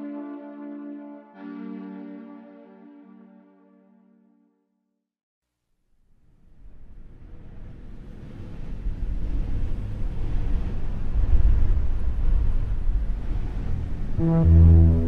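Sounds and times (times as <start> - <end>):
low rumbling noise: 8.6 - 15.0
deep held musical tone: 13.5 - 15.0.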